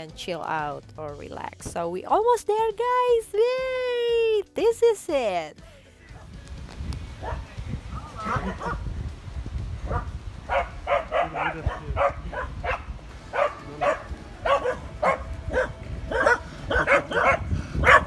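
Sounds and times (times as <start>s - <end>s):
dogs barking sharply: 7.2s - 8.8s, 9.9s - 18.0s.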